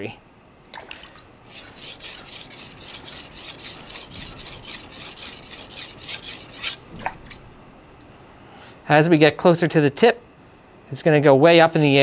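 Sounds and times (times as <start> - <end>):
knife scraping on whetstone: 1.5 - 6.8, 11.6 - 12.0.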